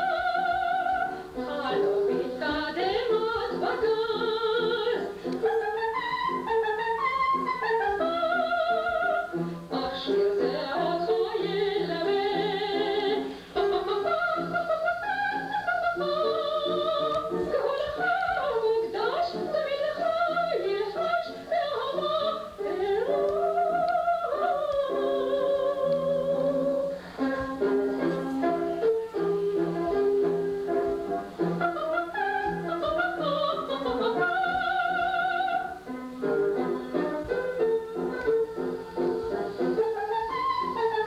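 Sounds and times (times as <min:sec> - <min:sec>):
woman singing with vibrato: 0:00.0 - 0:27.8, 0:28.7 - 0:41.0.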